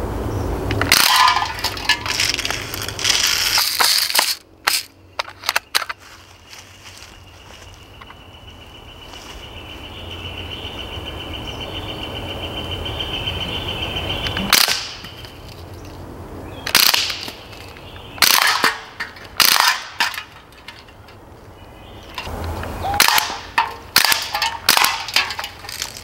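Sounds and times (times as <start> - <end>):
air rifle shots: 14.4 - 15.1, 16.7 - 17.4, 18.2 - 20.2, 22.9 - 25.3.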